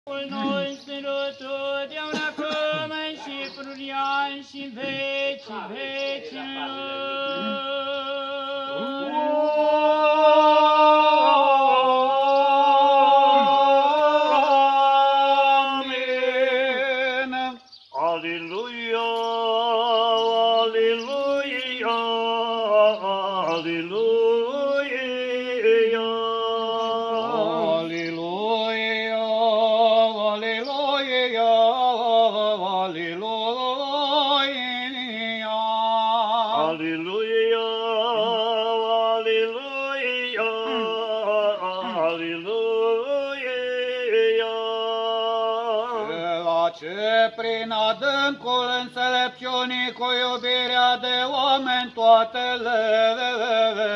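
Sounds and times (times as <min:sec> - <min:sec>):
men chanting a hymn: 0:00.1 - 0:53.9.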